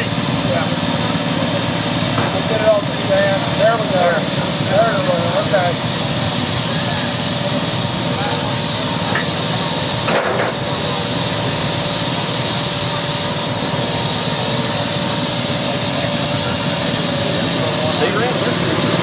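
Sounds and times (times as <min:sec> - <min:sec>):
steam hissing from locomotive: 0:00.0 - 0:19.0
metal clank: 0:10.0 - 0:10.9.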